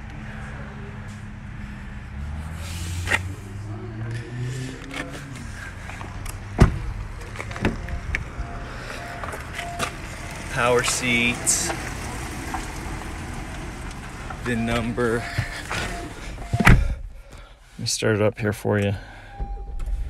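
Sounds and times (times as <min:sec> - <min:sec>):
car door thump: 0:06.4 - 0:07.9, 0:15.3 - 0:17.2.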